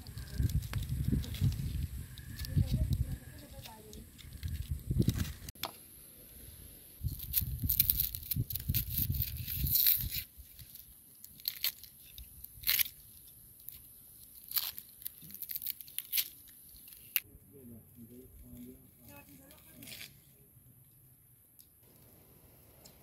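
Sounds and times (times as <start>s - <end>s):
rustling: 0.0s - 5.6s, 6.2s - 17.2s, 17.9s - 21.0s
knife cutting onion crunches: 7.0s - 17.2s.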